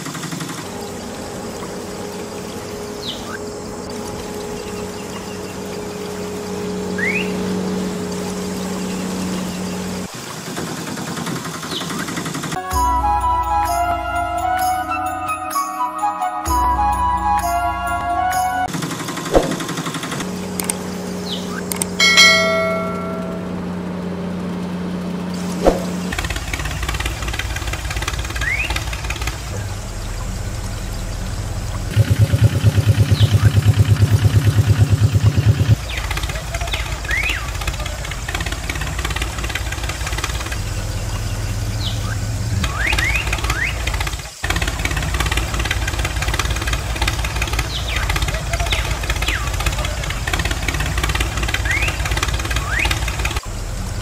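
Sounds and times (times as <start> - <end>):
toy truck motor hum: 0.0 - 12.6, 18.7 - 54.0
engine idling: 0.0 - 14.7, 16.5 - 54.0
water splashing: 19.2 - 23.4, 25.4 - 32.0.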